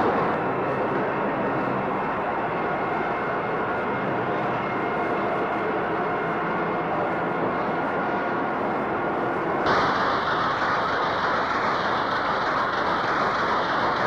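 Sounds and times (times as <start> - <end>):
louder brighter machine noise: 0.0 - 14.0
carding machine running: 9.7 - 14.0.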